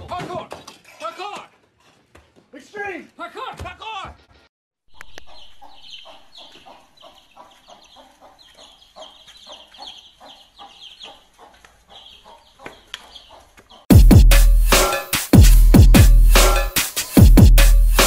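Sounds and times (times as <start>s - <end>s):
chickens clucking and peeping: 4.9s - 13.9s.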